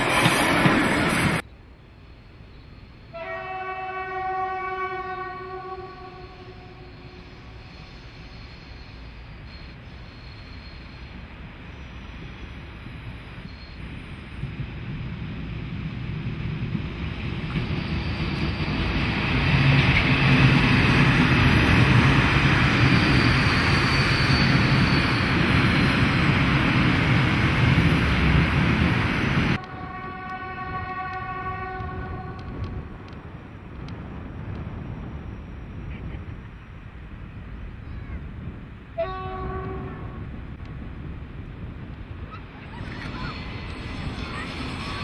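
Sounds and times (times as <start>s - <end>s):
diesel locomotives passing: 0.0s - 45.0s
distant locomotive horn: 3.1s - 7.3s, 29.6s - 32.7s, 39.0s - 40.2s.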